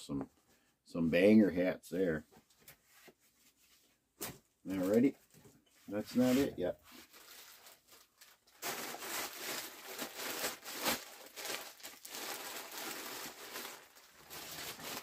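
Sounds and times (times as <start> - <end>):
packaging crinkling: 6.9 - 15.0.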